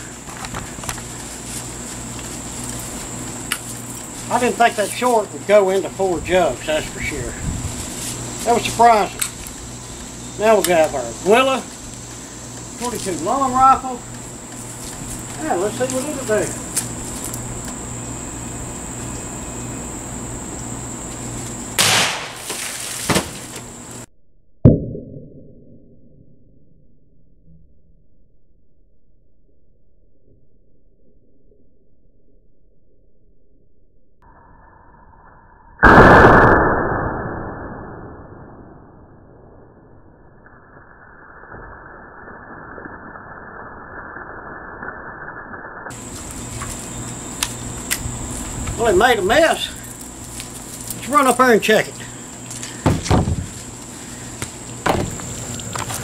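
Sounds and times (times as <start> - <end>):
close rifle shot crack: 21.8 - 22.4, 35.8 - 37.2
rifle shot crack: 21.8 - 23.3, 35.8 - 37.9
smaller crack: 21.8 - 23.7.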